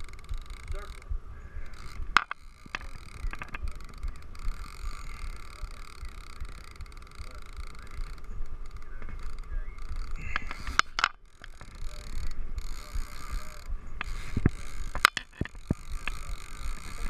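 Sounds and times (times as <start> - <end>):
reel and rod clicks and knocks: 0.0 - 1.1, 1.7 - 17.0
low rumble: 0.0 - 2.2
fishing reel cranking: 0.0 - 17.0.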